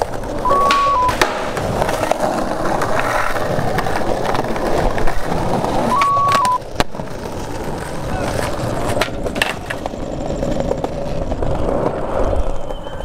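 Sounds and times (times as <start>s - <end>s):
skateboard clacks: 0.0s - 13.0s
skateboard wheels rolling on stone: 0.0s - 13.0s
electronic test-tone beep: 0.4s - 1.2s, 5.9s - 6.6s.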